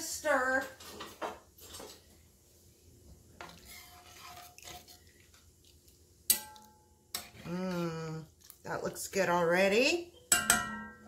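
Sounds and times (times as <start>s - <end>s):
spoon stirring thick soup: 3.2s - 8.7s
spoon scraping pot: 3.4s - 5.4s.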